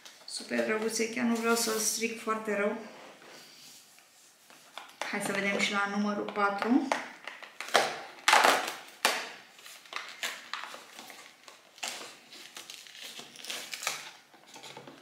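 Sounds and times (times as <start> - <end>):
cardboard crinkling: 7.3 - 15.0
cardboard tearing and crackling: 7.7 - 15.0.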